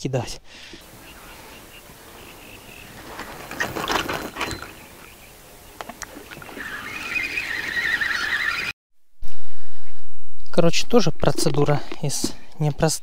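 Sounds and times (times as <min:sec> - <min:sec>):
fishing line whirring off reel: 0:05.8 - 0:08.7.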